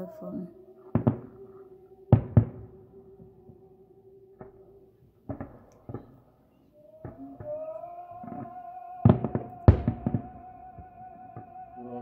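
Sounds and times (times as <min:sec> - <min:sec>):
distant firework booms: 0:00.9 - 0:03.7, 0:04.4 - 0:06.3, 0:08.2 - 0:11.5.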